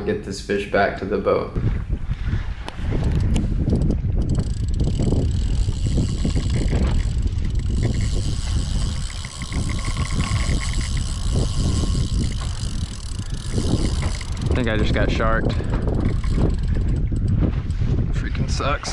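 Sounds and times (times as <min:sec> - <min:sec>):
wind rumbling on microphone: 0:00.0 - 0:18.9
boat engine running: 0:02.9 - 0:18.9
fishing reel winding: 0:03.0 - 0:17.8
fast light ticking: 0:03.1 - 0:17.4.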